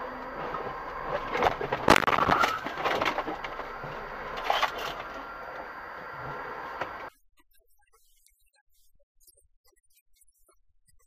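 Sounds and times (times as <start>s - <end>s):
clatter: 0.0s - 7.1s
steady road noise: 0.0s - 7.1s
crunching and cracking: 0.2s - 7.1s.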